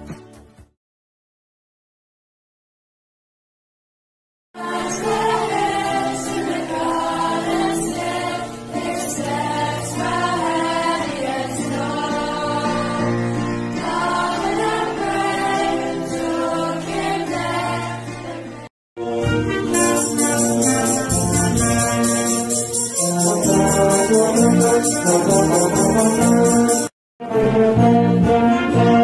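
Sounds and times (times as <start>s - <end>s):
children's choir singing: 4.6s - 18.7s
piano accompaniment: 19.0s - 29.0s.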